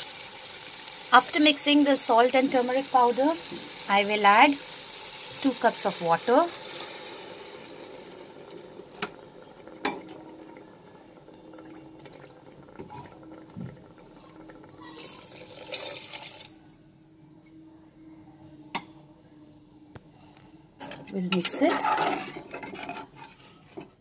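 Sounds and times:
water bubbling in pot: 4.5 - 16.6.

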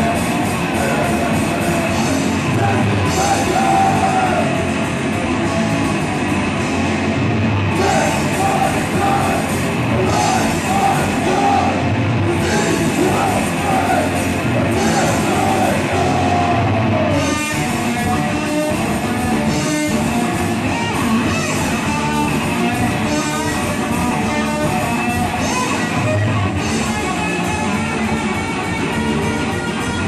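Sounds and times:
singer yelling: 0.0 - 4.7, 7.7 - 17.4
distorted electric guitars: 0.0 - 30.0.

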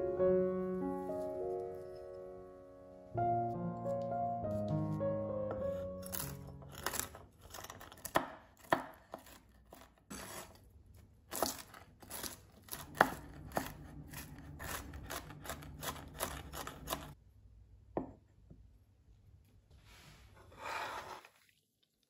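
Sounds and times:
knife chopping nuts on board: 6.1 - 10.5, 11.3 - 17.2.

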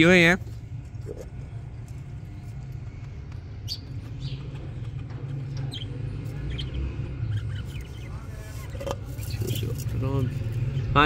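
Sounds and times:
steady low hum: 0.0 - 11.0
budgerigars chirping: 3.6 - 10.0.

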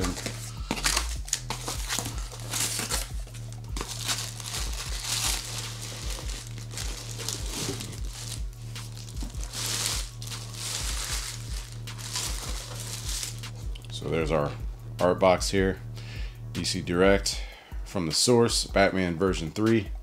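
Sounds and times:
plastic bag crinkling: 0.0 - 13.5
background music with bass beat: 0.0 - 20.0.

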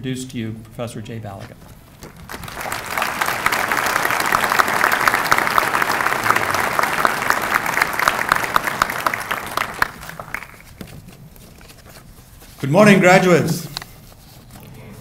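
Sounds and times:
audience applauding: 2.1 - 10.8.

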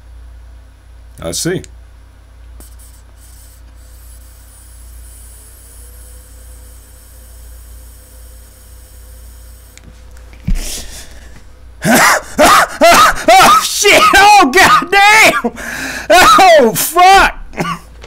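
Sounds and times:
low hum: 0.0 - 13.4
vape pen hiss: 2.6 - 10.8.

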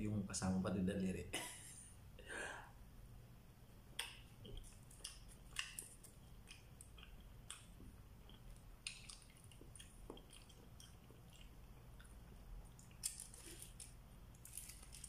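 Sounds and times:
chewing and mouth sounds: 4.0 - 15.0
bread tearing over foil: 13.0 - 15.0.

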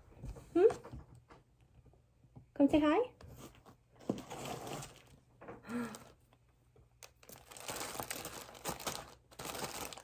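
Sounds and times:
plastic packaging crinkling: 4.1 - 6.2, 6.9 - 10.0.

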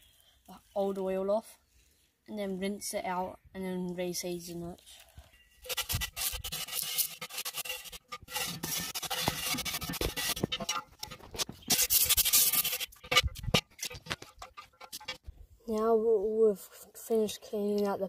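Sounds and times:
metal scourer scraping pot: 5.3 - 15.4.

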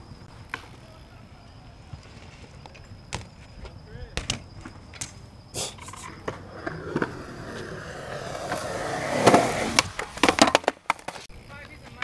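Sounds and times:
skateboard wheels rolling on concrete: 0.0 - 12.0
skateboard clattering: 5.8 - 12.0
skateboard pop: 9.2 - 11.2.

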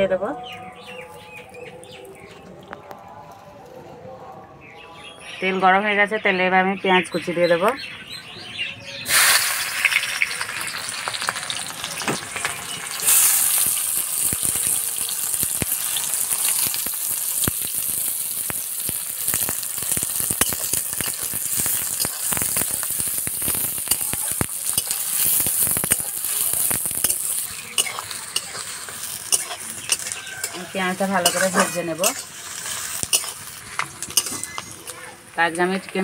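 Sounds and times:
onions sizzling in hot oil: 9.0 - 36.0
metal spatula scraping a pan: 19.8 - 35.0.

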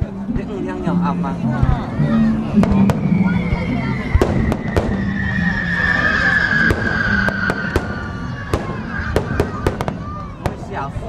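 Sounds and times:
falling firework whistle: 2.5 - 10.4
fireworks bangs and pops: 2.6 - 5.5, 6.5 - 11.0.

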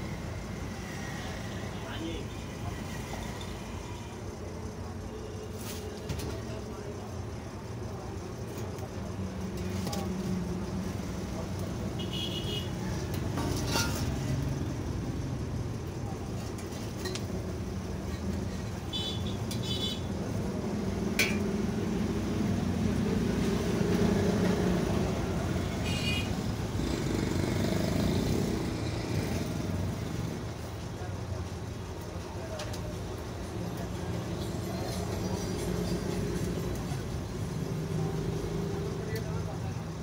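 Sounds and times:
road traffic rumble: 0.0 - 40.0
vehicle horn toots: 12.0 - 12.8.

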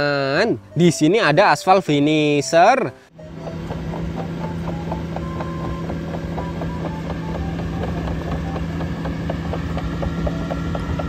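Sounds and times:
paver diesel engine hum: 2.9 - 11.0
machine parts squeaking and clicking: 4.2 - 11.0.

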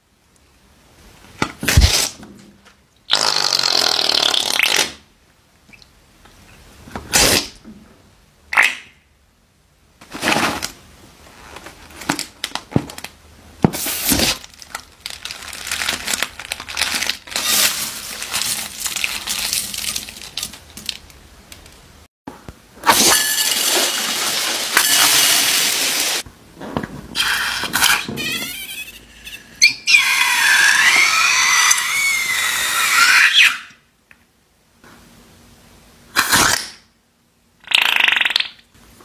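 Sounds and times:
slime squelching and crackling: 14.2 - 21.7.

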